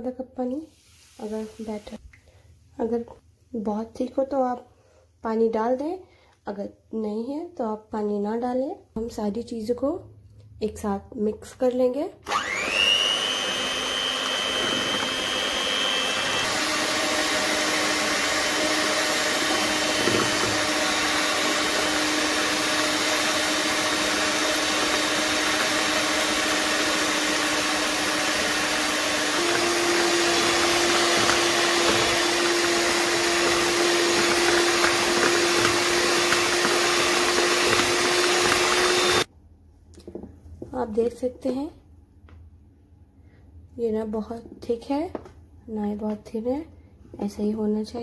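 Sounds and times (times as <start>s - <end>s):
electric hand mixer whisking batter: 12.3s - 39.3s.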